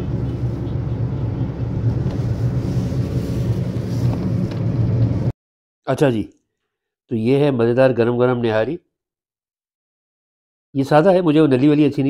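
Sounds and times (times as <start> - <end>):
car engine hum: 0.0 - 5.3.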